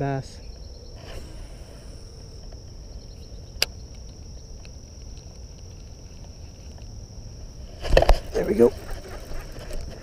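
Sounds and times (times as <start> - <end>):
insects chirring: 0.0 - 10.0
faint ticks: 2.4 - 7.0.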